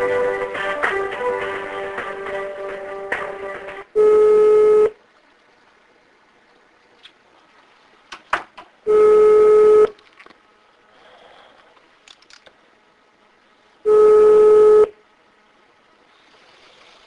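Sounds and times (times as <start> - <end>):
telephone hold music: 0.0 - 4.9
telephone ringing tone: 4.0 - 5.0, 8.9 - 10.0, 13.9 - 14.9.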